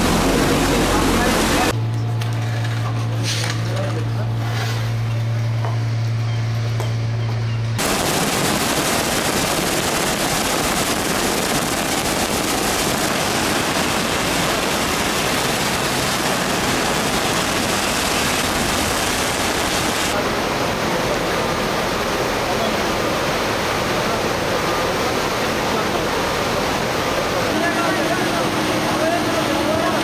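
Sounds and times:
floodwater rushing roar: 0.0 - 1.8, 7.8 - 30.0.

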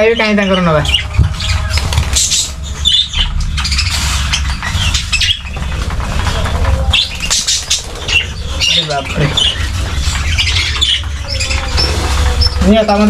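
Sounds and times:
budgerigars chirping: 0.0 - 13.0
wings fluttering and rustling: 0.0 - 13.0.

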